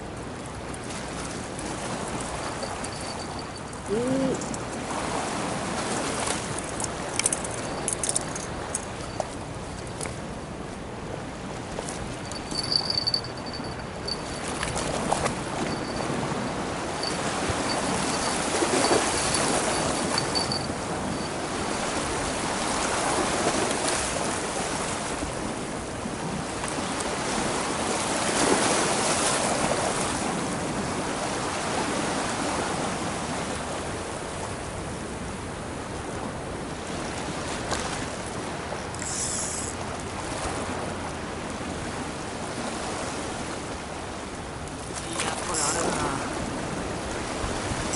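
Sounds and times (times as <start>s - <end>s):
waves washing against sea wall: 0.0s - 47.9s
faint high-pitched pulsing tone: 17.0s - 21.5s.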